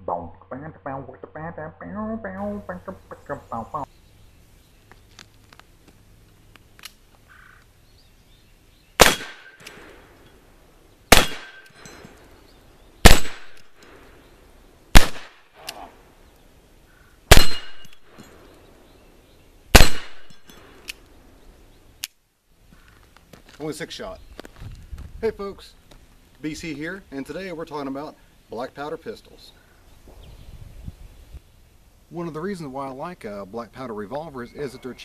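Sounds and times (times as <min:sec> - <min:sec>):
revolver shots echoing: 0:09.0 - 0:10.1, 0:11.1 - 0:12.1, 0:13.0 - 0:14.1, 0:15.0 - 0:15.9, 0:17.3 - 0:18.4, 0:19.8 - 0:20.8.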